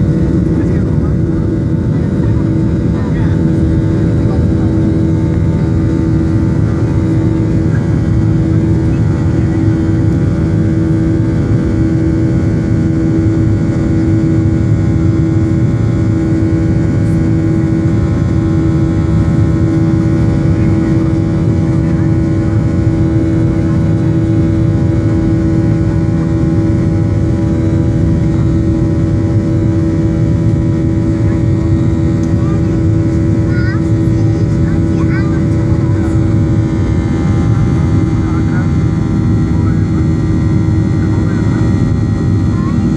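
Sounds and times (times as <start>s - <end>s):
aircraft cabin roar: 0.0s - 42.9s
low drone: 0.0s - 42.9s.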